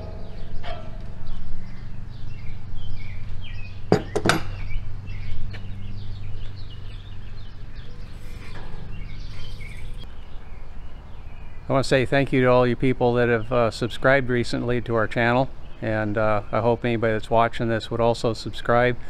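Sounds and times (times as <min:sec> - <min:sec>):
steady low hum: 0:00.0 - 0:11.7
small birds chirping: 0:00.0 - 0:19.0.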